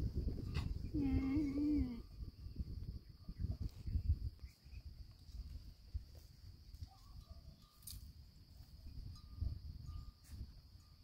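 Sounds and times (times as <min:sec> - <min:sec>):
wind buffeting microphone: 0:00.0 - 0:11.0
faint bird chirps: 0:00.8 - 0:05.3.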